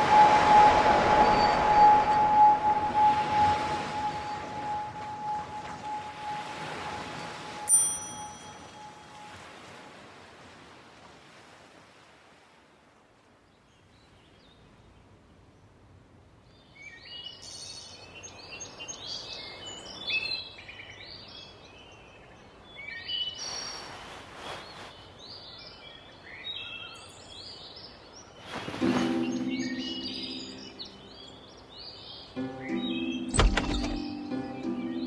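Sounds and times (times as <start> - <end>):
small birds chirping: 16.5 - 35.0
soft rustle: 23.4 - 25.6, 28.4 - 29.3.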